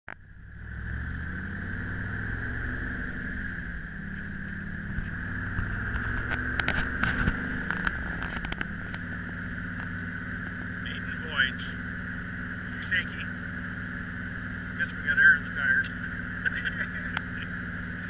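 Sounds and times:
car engine running: 0:00.0 - 0:18.0
high whine: 0:00.1 - 0:18.0
sharp clicks and knocks: 0:04.9 - 0:09.1.

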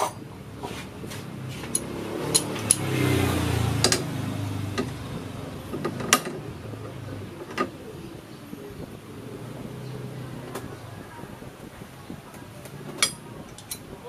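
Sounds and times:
metal tool clicking and knocking: 0:13.0 - 0:13.8.

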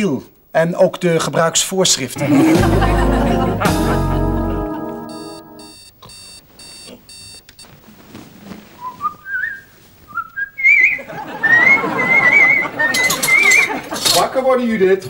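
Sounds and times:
music sting: 0:02.3 - 0:05.8
alarm clock beeping: 0:03.0 - 0:07.4.

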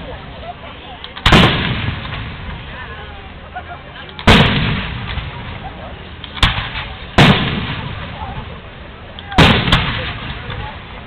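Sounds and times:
fireworks booming: 0:01.2 - 0:03.0, 0:04.2 - 0:11.0.

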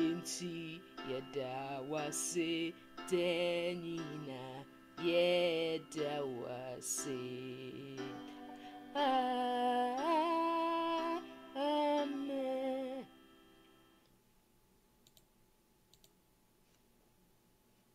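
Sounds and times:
woman singing with vibrato: 0:00.0 - 0:13.1
faint clicks: 0:15.0 - 0:15.3, 0:15.9 - 0:16.8.

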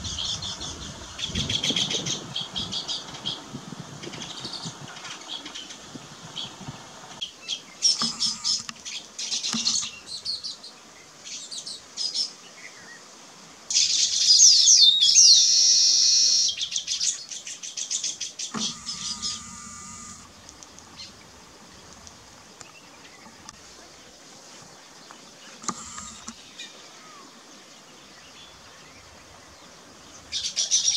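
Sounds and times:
wheezy buzzing birdsong: 0:00.0 - 0:30.9
birds chirping and chattering: 0:17.9 - 0:27.3.

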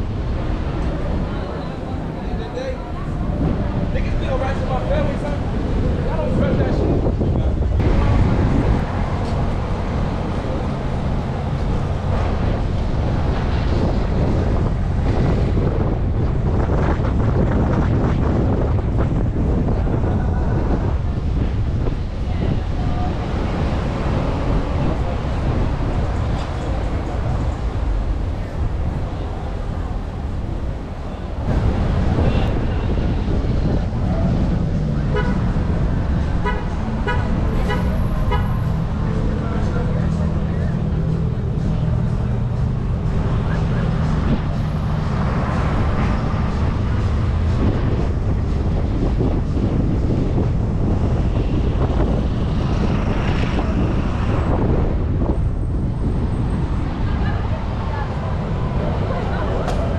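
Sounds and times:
street traffic: 0:00.0 - 0:59.9
wind buffeting microphone: 0:00.0 - 0:59.9
car horn honking: 0:35.1 - 0:35.5, 0:36.4 - 0:38.7.

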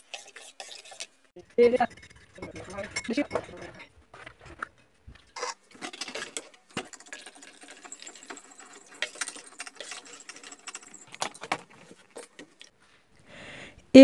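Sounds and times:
spoon scraping metal bowl: 0:00.0 - 0:12.7
spoon clinking on bowl: 0:01.6 - 0:03.8.

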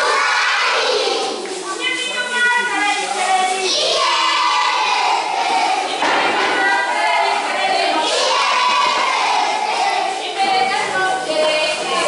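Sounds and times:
children shouting: 0:00.0 - 0:01.6, 0:03.6 - 0:10.8
children singing: 0:00.0 - 0:01.6, 0:03.0 - 0:12.0.

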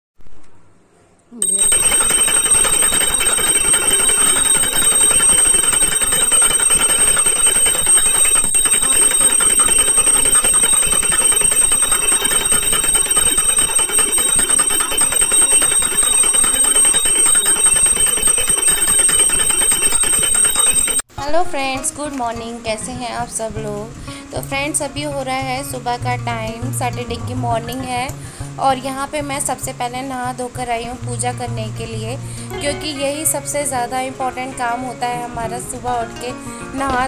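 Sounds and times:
small metal bells jangling: 0:01.4 - 0:21.0.

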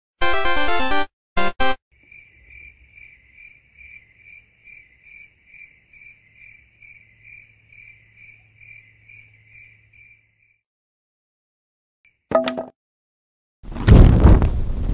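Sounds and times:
cricket chirping sound effect: 0:02.0 - 0:10.6.

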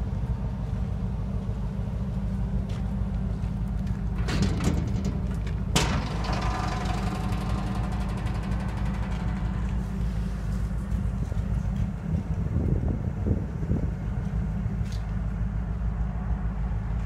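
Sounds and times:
low rumble: 0:01.1 - 0:16.5
metal door clank: 0:04.0 - 0:11.6
latch clicks rattling: 0:04.1 - 0:10.0.

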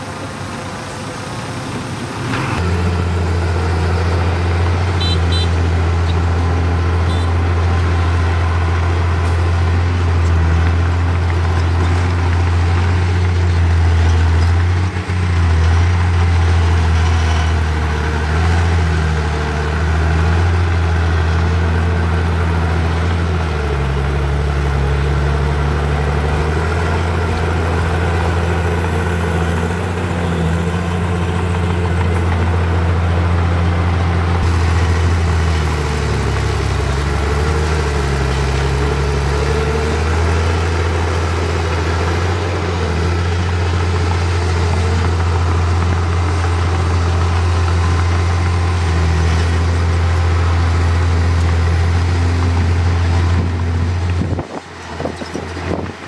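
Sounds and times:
heavy diesel engine running: 0:00.0 - 0:56.0.

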